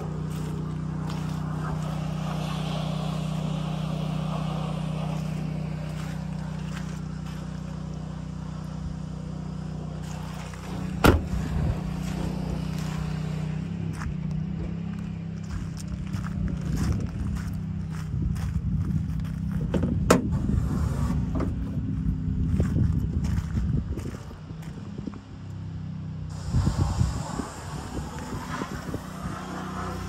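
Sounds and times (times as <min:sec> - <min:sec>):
pickup truck idling: 0:00.0 - 0:19.6
truck door shutting: 0:10.7 - 0:12.4, 0:19.7 - 0:21.6.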